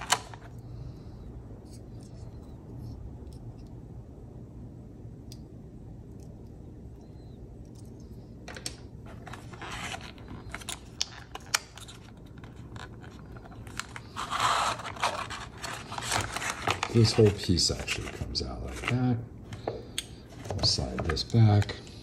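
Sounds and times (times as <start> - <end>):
plastic tray scraping rustle: 13.0 - 19.0.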